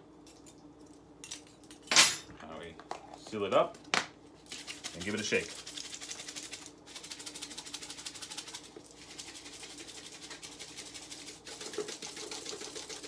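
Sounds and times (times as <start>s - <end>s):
dry spices rattling in container: 4.5s - 13.0s.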